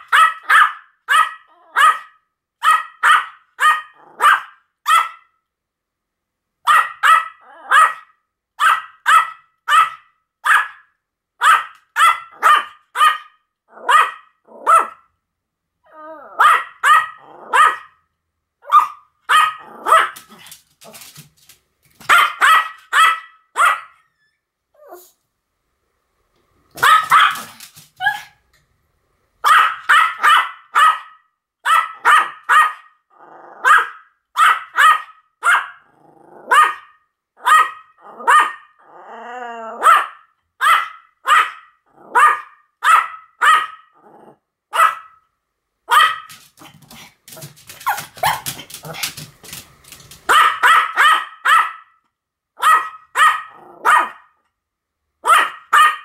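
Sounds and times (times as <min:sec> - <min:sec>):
small dog barking: 0:00.0 - 0:05.4, 0:06.6 - 0:15.1, 0:16.3 - 0:18.0, 0:18.6 - 0:21.0, 0:22.0 - 0:24.0, 0:26.8 - 0:28.4, 0:29.4 - 0:33.0, 0:33.6 - 0:38.8, 0:39.7 - 0:44.0, 0:44.7 - 0:45.2, 0:45.9 - 0:49.2, 0:50.2 - 0:52.0, 0:52.6 - 0:54.4, 0:55.2 - 0:56.0.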